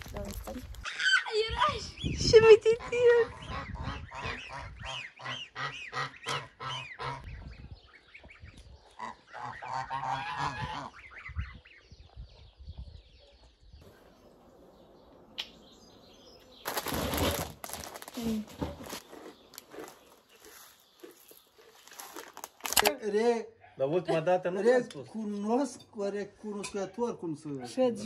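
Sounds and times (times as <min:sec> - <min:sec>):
geese honking: 0:02.6 - 0:07.5, 0:08.1 - 0:11.4.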